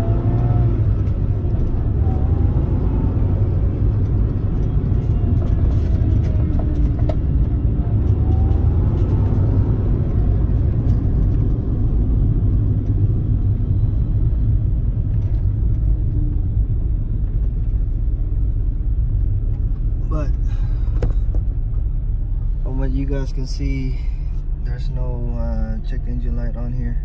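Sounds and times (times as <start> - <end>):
car cabin engine and tyre rumble: 0.0 - 27.0.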